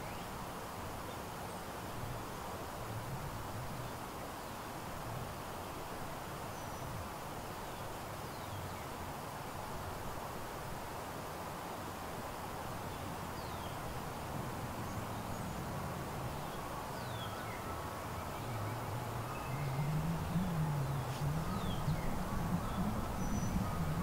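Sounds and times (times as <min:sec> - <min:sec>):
outdoor hiss: 0:00.0 - 0:24.0
birds chirping: 0:12.9 - 0:24.0
low wavering drone: 0:15.0 - 0:24.0.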